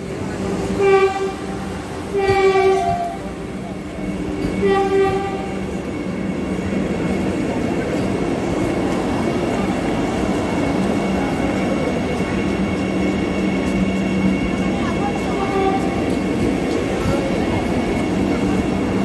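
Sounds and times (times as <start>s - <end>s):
train rumble and hum: 0.0s - 19.0s
train horn blast: 0.8s - 3.4s, 4.6s - 5.7s, 15.3s - 16.2s.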